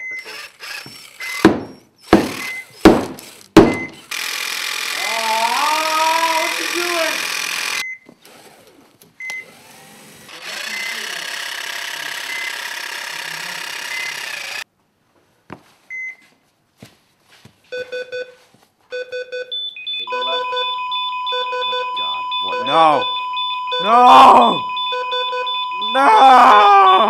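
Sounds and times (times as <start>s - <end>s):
power saw cutting fabric: 0.0s - 8.8s, 9.4s - 14.6s
electronic alarm beeping: 2.4s - 2.8s, 3.7s - 4.0s, 13.9s - 14.2s, 18.9s - 27.0s.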